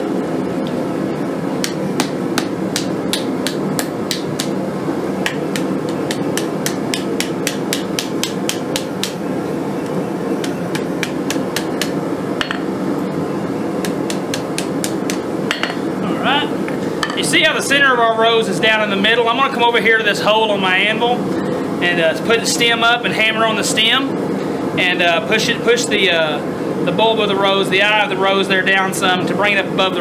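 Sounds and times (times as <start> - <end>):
hammer striking hot steel: 1.6 - 4.6, 5.2 - 9.2, 10.4 - 12.8, 13.8 - 15.9.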